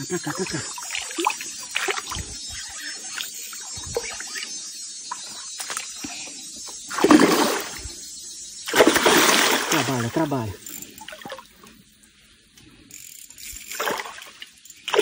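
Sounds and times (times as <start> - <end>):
small ticks: 0.2 - 6.9, 10.2 - 15.0
fish thrashing in shallow water: 6.9 - 7.9, 8.7 - 11.6
loud splash: 7.0 - 7.8, 8.7 - 10.1
light water sloshing: 8.7 - 10.3.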